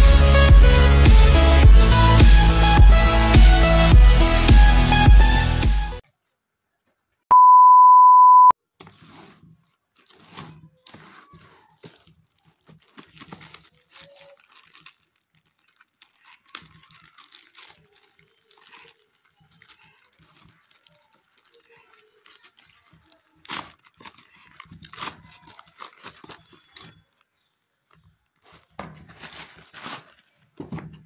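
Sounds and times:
loud high beep: 7.3 - 8.5
plastic bag crinkling: 9.0 - 31.0.

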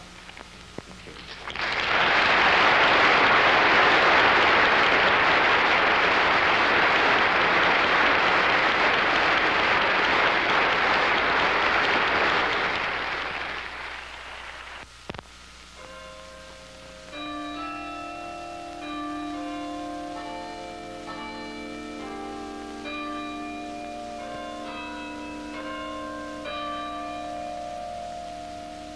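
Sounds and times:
audience applauding: 1.0 - 14.9.

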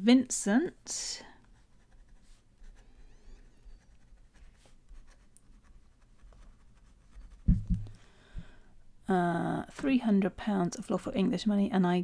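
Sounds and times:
pen scratching on paper: 1.4 - 7.6
low thumps: 7.4 - 8.5.

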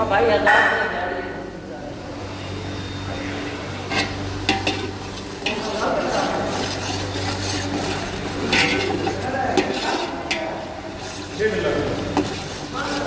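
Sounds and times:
steady low hum: 0.0 - 13.0
metal spoon scraping pot: 3.8 - 11.4, 12.0 - 13.0
oil sizzling: 3.8 - 13.0.

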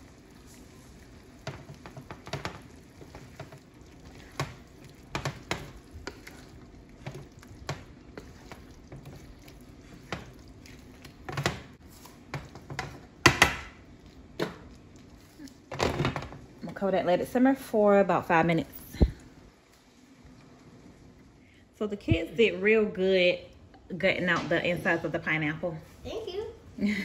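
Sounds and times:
sauce sizzling: 0.0 - 15.7
wooden spatula scraping a pan: 0.4 - 13.2.

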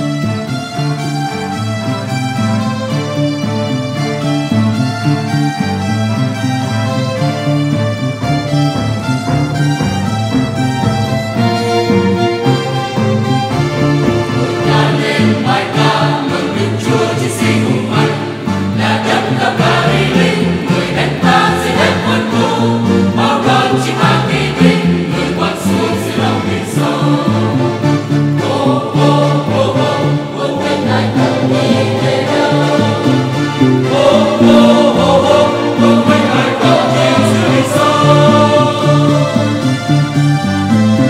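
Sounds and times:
keyboard: 0.0 - 41.0
violin: 0.0 - 41.0
mixed choir singing a hymn: 13.3 - 40.3.

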